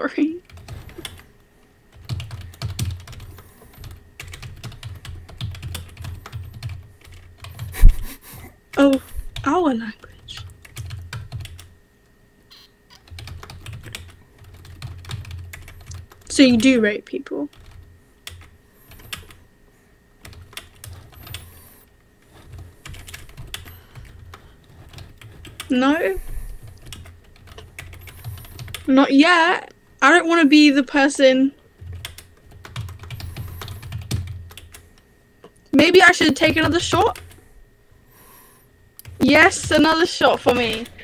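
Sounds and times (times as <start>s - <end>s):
keyboard typing: 0.4s - 1.3s, 1.9s - 7.8s, 10.3s - 11.7s, 12.9s - 16.6s, 17.5s - 19.4s, 20.2s - 21.7s, 22.3s - 25.8s, 26.6s - 28.9s, 31.8s - 34.8s, 35.8s - 37.4s, 39.0s - 41.0s.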